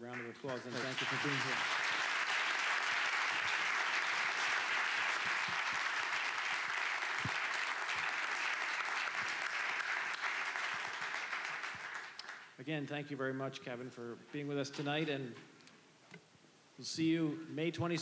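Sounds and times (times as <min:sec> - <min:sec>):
audience applauding: 0:00.0 - 0:12.5.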